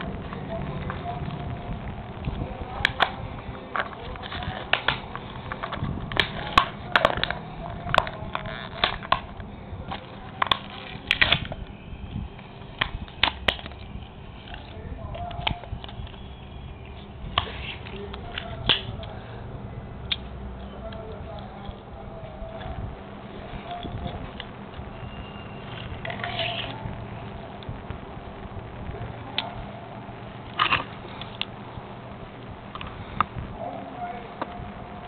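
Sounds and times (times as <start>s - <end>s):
plastic packaging crackling: 0.0s - 19.2s.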